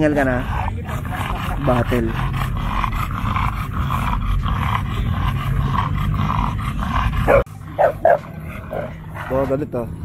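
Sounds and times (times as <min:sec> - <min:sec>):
dog panting: 0:00.0 - 0:10.0.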